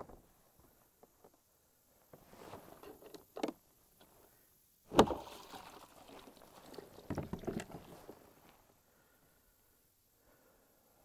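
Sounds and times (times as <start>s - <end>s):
water splashing against kayak: 4.9s - 8.4s.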